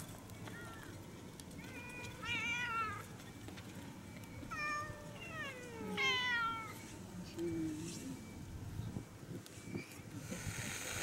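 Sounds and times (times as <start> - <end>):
cats meowing: 1.6 - 3.0, 4.5 - 6.8.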